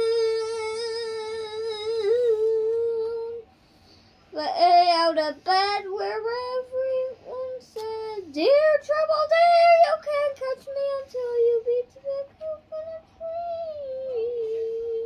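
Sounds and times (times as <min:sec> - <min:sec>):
boy singing wordlessly: 0:00.0 - 0:03.4, 0:04.4 - 0:15.0.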